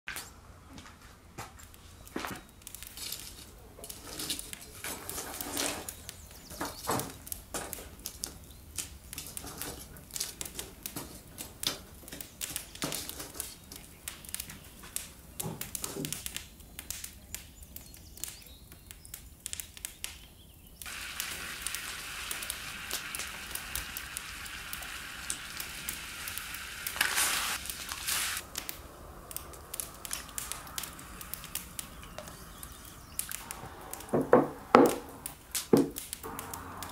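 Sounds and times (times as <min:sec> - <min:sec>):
wood fire crackling: 0:00.2 - 0:36.9
pot of water hissing: 0:20.8 - 0:36.9.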